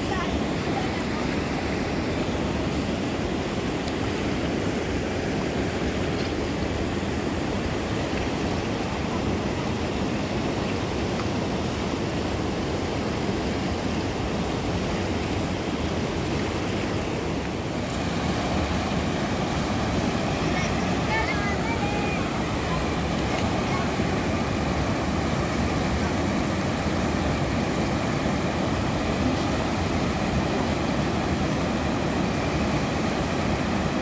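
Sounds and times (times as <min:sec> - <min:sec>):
river water rushing: 0:00.0 - 0:34.0.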